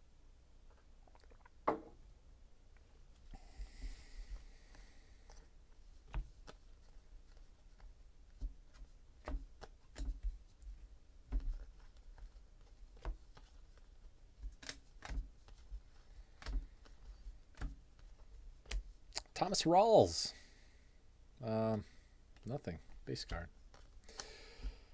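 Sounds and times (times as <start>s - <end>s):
cards flipped clicking: 14.4s - 15.6s.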